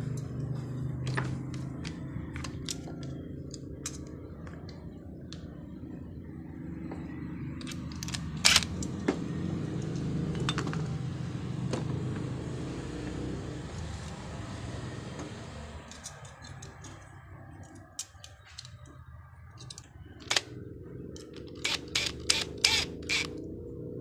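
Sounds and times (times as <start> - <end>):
steady low hum: 0.0 - 11.6
metal tools clattering: 9.8 - 10.9, 15.9 - 18.9, 19.6 - 20.3.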